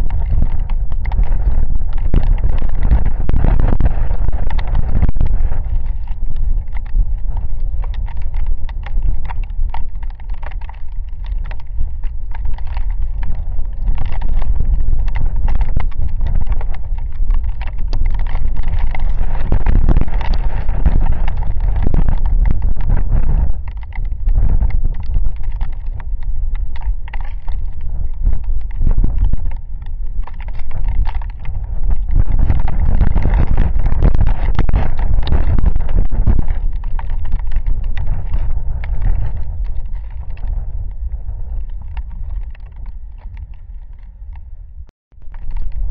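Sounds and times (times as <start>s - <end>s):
raindrops ticking: 0.0s - 40.8s, 41.5s - 44.0s, 45.2s - 45.9s
gusting wind buffeting microphone: 0.0s - 45.9s.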